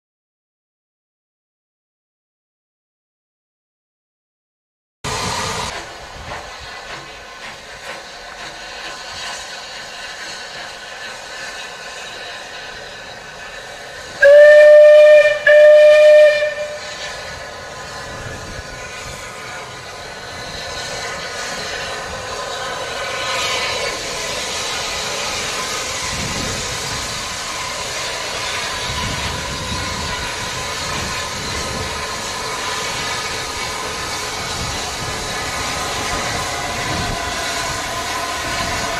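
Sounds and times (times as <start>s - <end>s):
steam hiss: 5.1s - 38.9s
steam locomotive whistle: 14.2s - 17.2s.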